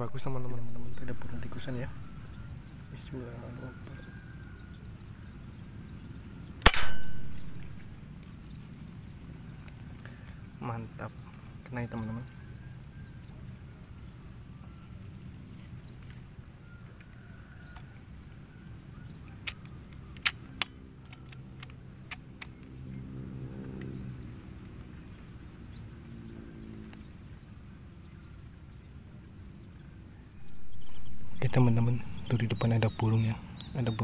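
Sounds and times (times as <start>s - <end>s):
insects droning: 0.0s - 34.0s
sharp clicks: 6.6s - 7.8s, 19.4s - 22.7s.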